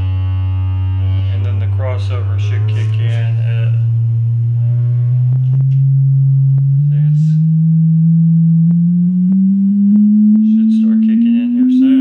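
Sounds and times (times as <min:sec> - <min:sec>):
subwoofer frequency sweep tone: 0:00.0 - 0:12.0.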